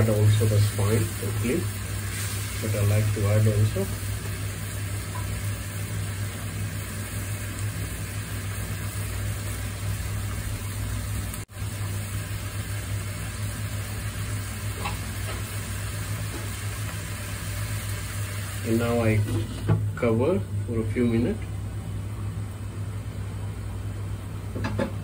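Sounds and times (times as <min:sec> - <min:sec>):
food sizzling in a pan: 0:00.0 - 0:20.0.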